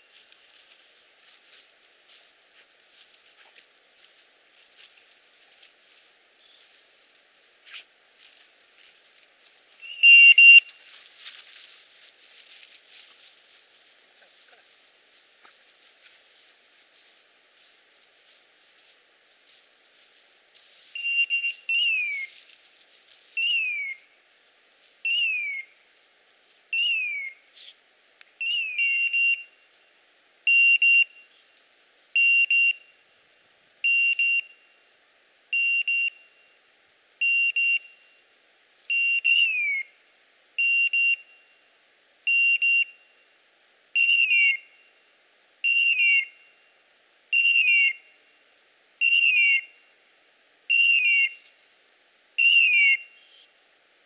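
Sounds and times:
beeper collar beeping: 9.8 - 10.7, 33.8 - 34.7, 35.6 - 36.5, 37.2 - 38.0, 40.6 - 41.5.

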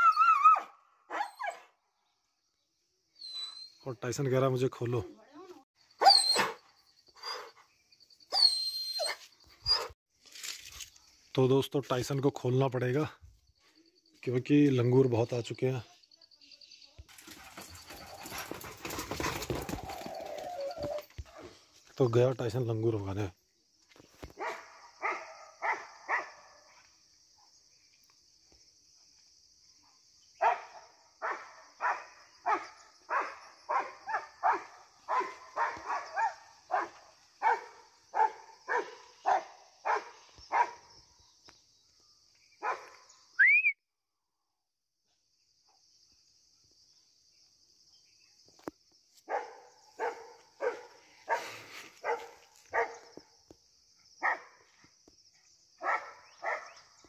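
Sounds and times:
dog barking: 0.6 - 1.7, 6.0 - 6.6, 24.4 - 26.8, 30.4 - 40.9, 42.6 - 43.0, 49.3 - 53.1, 54.2 - 54.7, 55.8 - 56.8
short rising whistle: 43.4 - 43.8.

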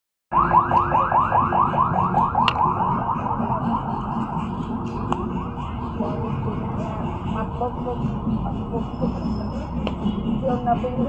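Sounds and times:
electronic warbling alarm: 0.3 - 4.8.

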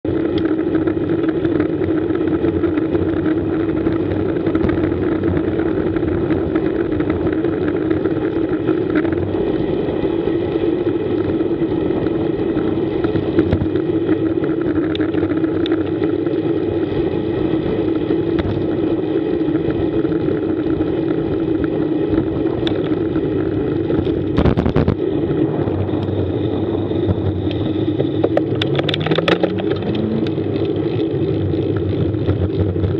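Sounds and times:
wind and road rumble: 0.0 - 32.9
rising engine tone: 25.0 - 32.9.

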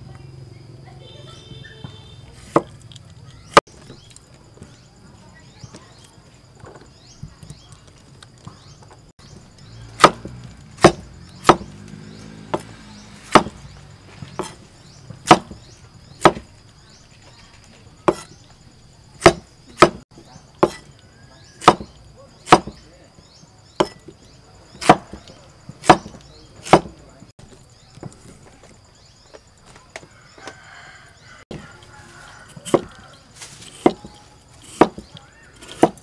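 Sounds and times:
cleaver chopping on wooden board: 2.4 - 2.8, 9.3 - 16.5, 18.0 - 18.4, 19.2 - 20.0, 20.6 - 22.9, 23.7 - 27.0, 32.5 - 36.0.

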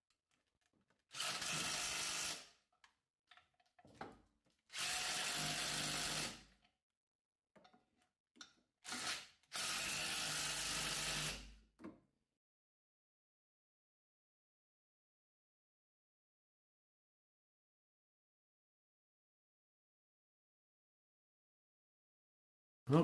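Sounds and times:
cordless power tool driving bolts: 1.1 - 2.4.

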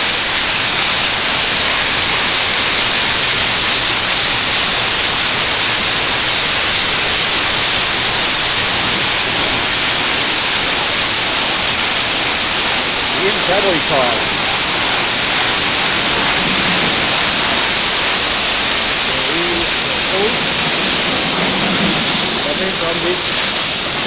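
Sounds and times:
high-pressure water jets hissing: 0.0 - 24.0.

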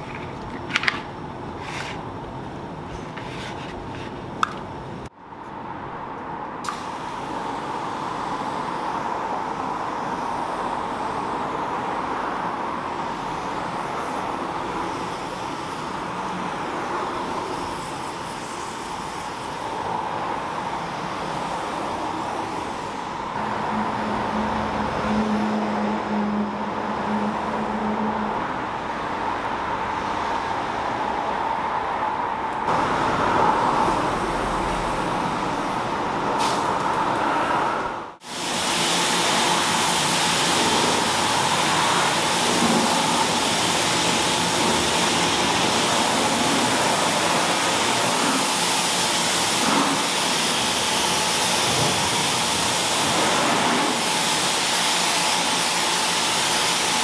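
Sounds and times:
pressure sprayer hissing: 38.2 - 57.0.

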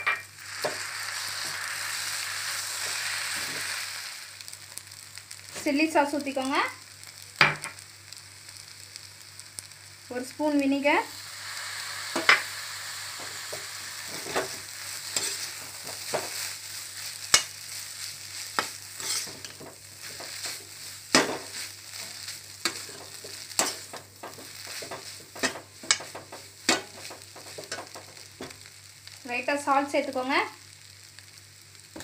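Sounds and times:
noodles sizzling in a pan: 0.0 - 32.0
metal spatula scraping a pan: 13.2 - 16.5, 17.2 - 28.6.

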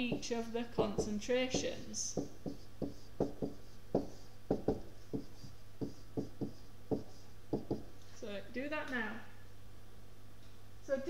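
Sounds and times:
stylus tapping on tablet screen: 0.0 - 7.9.

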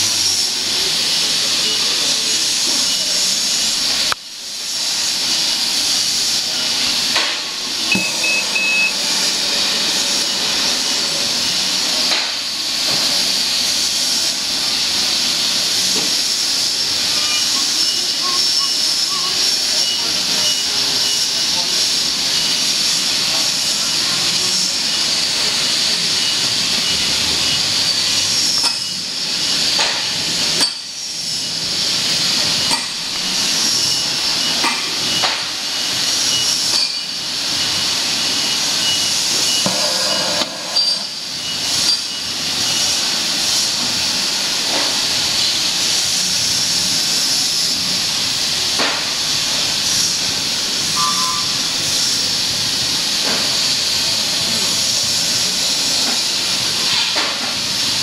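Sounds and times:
steady loud hiss of air: 0.0 - 58.0.

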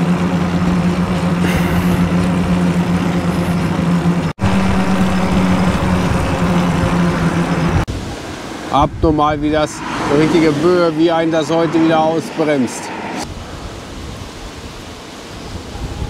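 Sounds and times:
steady low hum: 0.0 - 7.9
gusty wind on microphone: 4.3 - 16.0.

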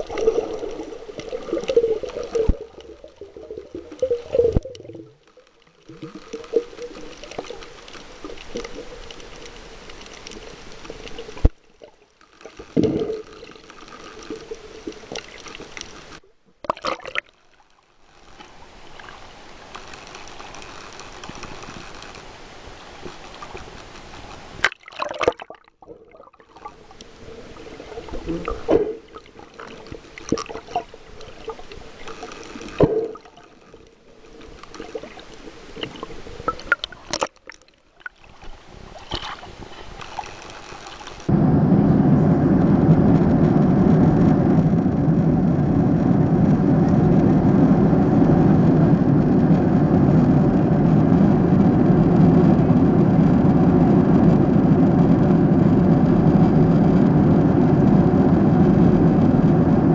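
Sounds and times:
water sloshing and gurgling: 0.0 - 41.3
sharp water splashes: 24.6 - 25.8.

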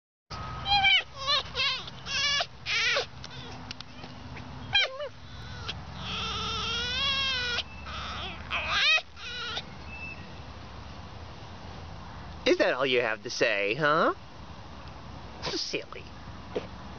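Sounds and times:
fox high-pitched wavering calls: 0.6 - 4.1, 4.7 - 9.7.

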